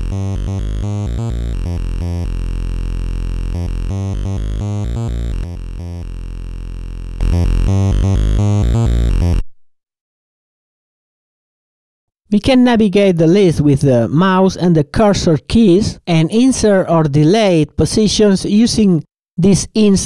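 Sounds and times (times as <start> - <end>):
synth repeating pattern of notes: 0.0 - 9.4.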